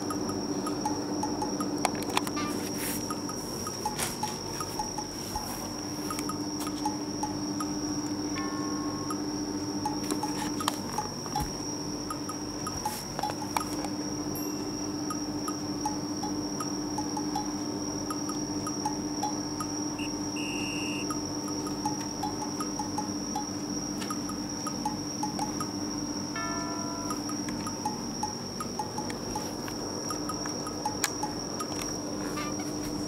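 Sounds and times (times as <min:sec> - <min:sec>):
steady high-pitched tone: 0:00.0 - 0:33.0
chime-like background music: 0:14.4 - 0:15.2, 0:26.4 - 0:28.3.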